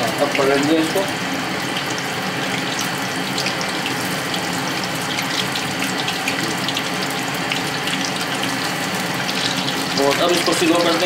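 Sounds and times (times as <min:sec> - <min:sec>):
chicken deep-frying in hot oil: 0:00.0 - 0:11.0.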